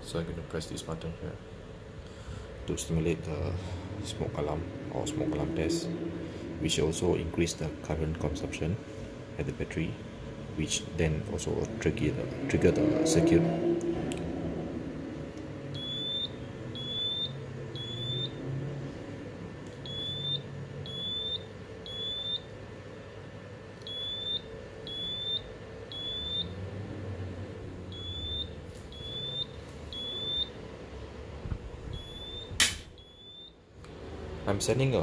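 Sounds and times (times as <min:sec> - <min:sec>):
smoke alarm beeping: 0:15.7 - 0:18.4, 0:19.8 - 0:22.5, 0:23.8 - 0:26.6, 0:27.9 - 0:30.6, 0:31.9 - 0:33.6
sharp click: 0:32.6 - 0:32.9.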